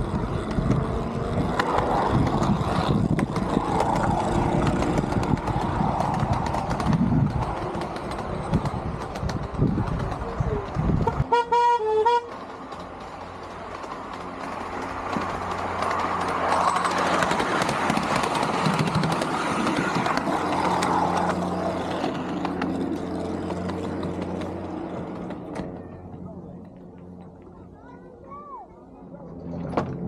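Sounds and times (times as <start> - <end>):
train running on rails: 0.0 - 30.0
train horn toots: 11.0 - 12.4.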